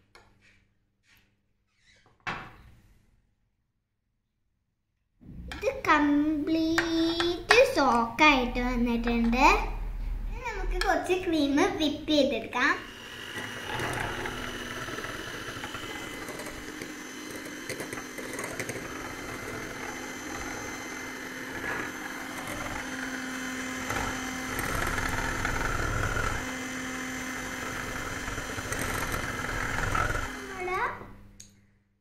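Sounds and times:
electric hand mixer whipping cream: 0:12.5 - 0:31.0.

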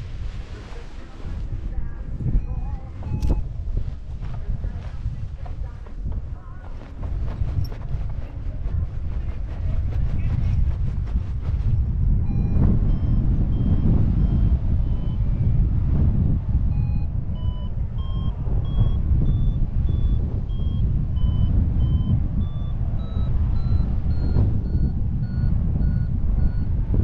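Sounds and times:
wind rumble on microphone: 0:00.0 - 0:27.0
variometer beeping: 0:02.2 - 0:04.8, 0:12.2 - 0:15.6, 0:16.6 - 0:27.0.

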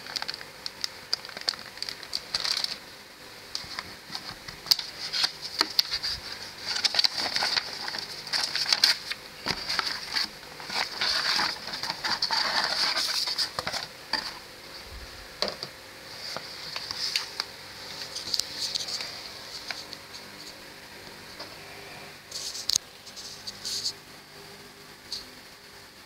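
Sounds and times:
plastic and paper rustling: 0:00.0 - 0:02.8, 0:03.5 - 0:14.4, 0:15.4 - 0:20.6, 0:22.3 - 0:24.0.

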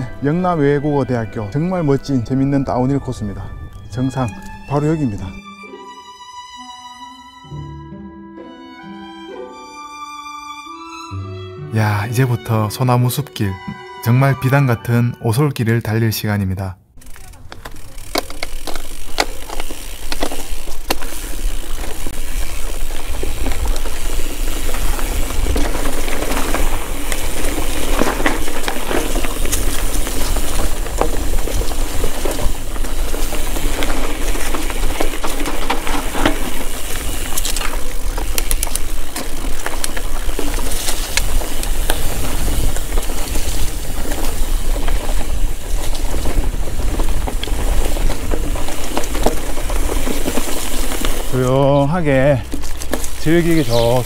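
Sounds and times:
bike clicking and rattling: 0:17.0 - 0:54.0
bike tyres on dirt: 0:17.0 - 0:54.0.

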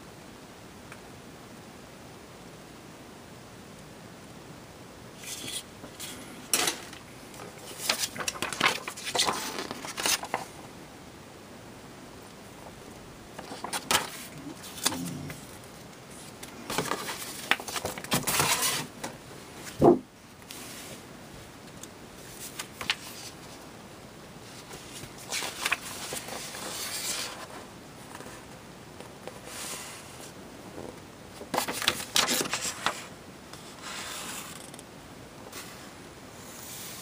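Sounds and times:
paper rustling: 0:05.2 - 0:10.6, 0:13.3 - 0:21.0, 0:22.2 - 0:23.6, 0:24.4 - 0:30.4, 0:31.3 - 0:34.6.

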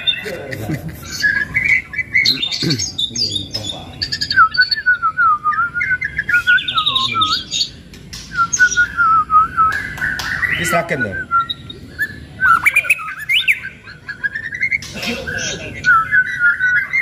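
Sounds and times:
songbird singing trills and whistles: 0:00.0 - 0:17.0.

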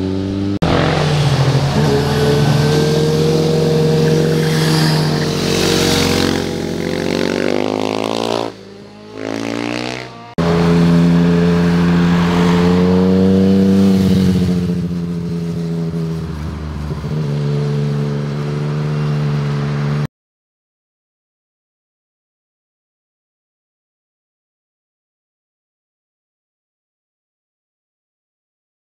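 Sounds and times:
car passing close: 0:00.0 - 0:17.6
motorcycle engines accelerating: 0:00.0 - 0:20.1.

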